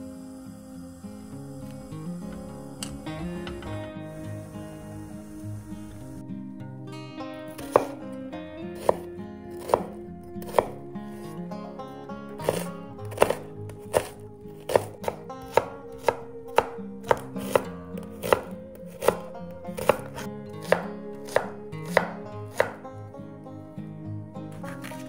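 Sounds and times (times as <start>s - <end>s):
soft background music: 0.0s - 25.0s
knife chopping on cutting board: 7.6s - 8.0s, 8.8s - 10.8s, 12.4s - 22.8s.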